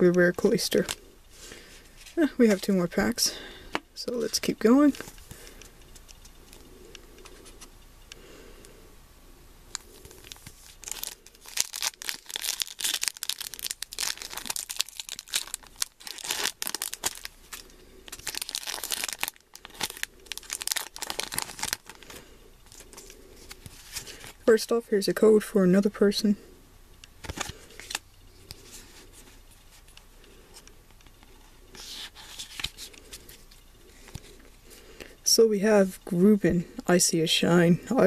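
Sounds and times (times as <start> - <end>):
foil wrapper tearing and crinkling: 9.7 - 24.4.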